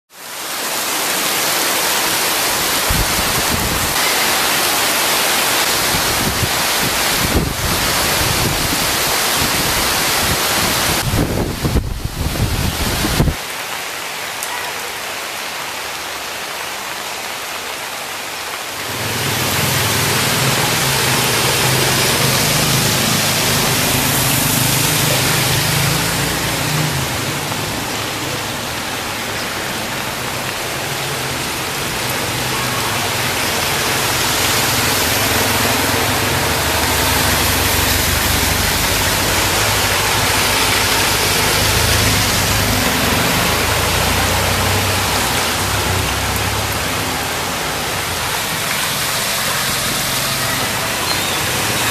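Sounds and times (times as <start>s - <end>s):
steady rain: 0.1s - 51.9s
motorbike engines: 1.0s - 13.3s, 18.8s - 51.9s
truck engine: 18.8s - 51.9s.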